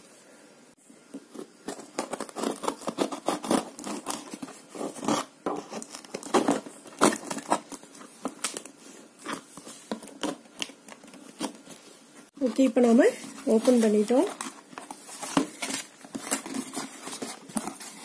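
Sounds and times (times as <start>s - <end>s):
knife sawing through packing tape: 1.8s - 5.3s.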